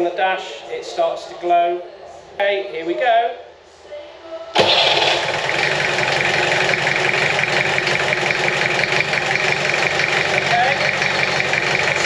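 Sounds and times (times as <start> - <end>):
diesel engine idling roughly: 4.6 - 12.0.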